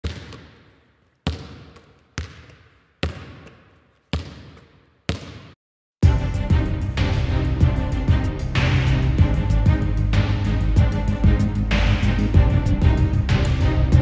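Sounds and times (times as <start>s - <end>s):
basketball bouncing on hard floor: 0.0s - 5.6s
loud music: 6.0s - 14.0s.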